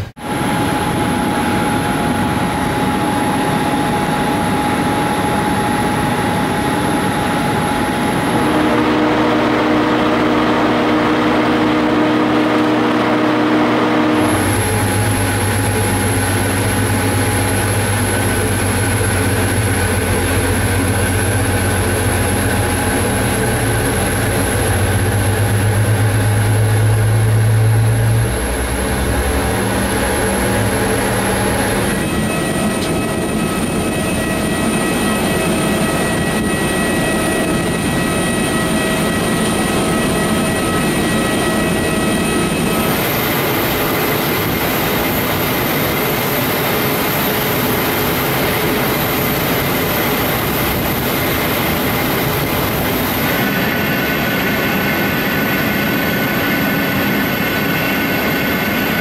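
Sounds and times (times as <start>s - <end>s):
aircraft turbines whining: 0.0s - 59.0s
deep hum: 8.0s - 32.0s.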